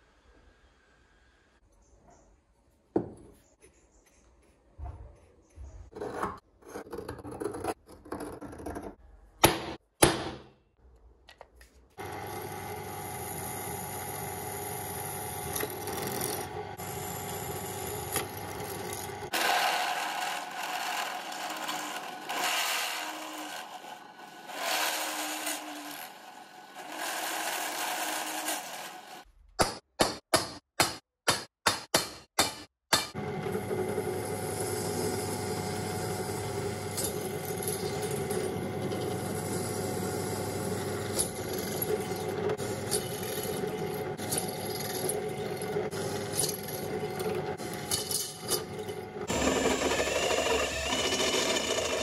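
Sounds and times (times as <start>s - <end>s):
drill press drilling steel: 33.8s - 52.0s.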